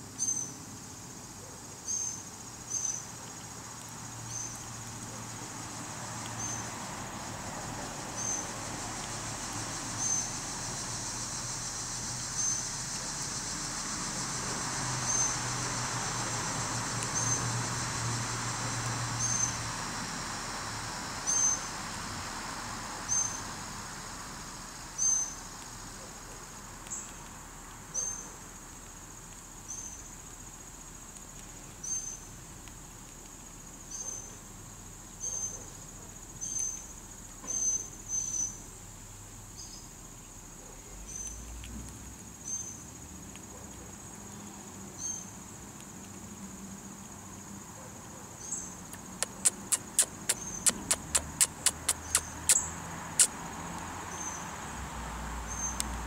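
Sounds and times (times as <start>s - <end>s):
fast sharp clicks: 48.9s - 53.3s.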